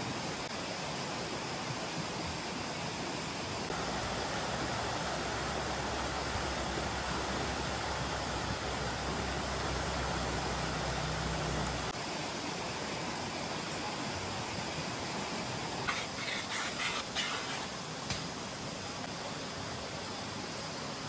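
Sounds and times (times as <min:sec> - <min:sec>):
steady hiss: 0:00.0 - 0:21.0
low hum: 0:03.7 - 0:12.0.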